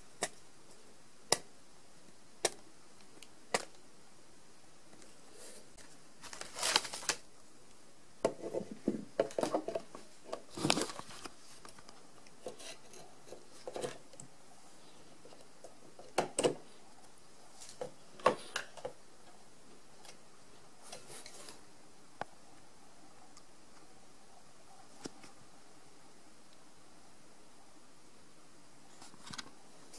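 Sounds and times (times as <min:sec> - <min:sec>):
hands handling plastic lamp parts: 0:05.8 - 0:07.3, 0:08.3 - 0:14.4.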